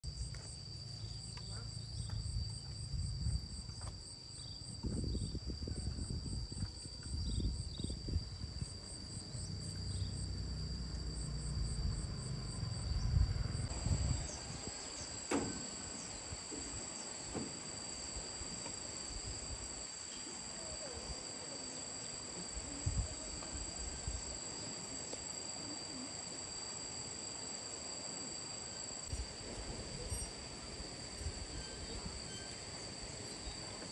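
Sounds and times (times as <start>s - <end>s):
fast pulsing insect chirp: 0.0s - 33.9s
insects singing shrill tones: 4.2s - 29.2s, 29.9s - 33.8s
low rumble: 9.4s - 14.4s.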